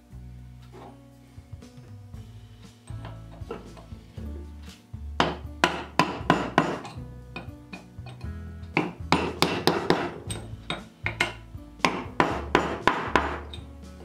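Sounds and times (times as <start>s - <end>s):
background music with bass: 0.0s - 14.0s
mallet tapping metal punch: 5.2s - 13.7s.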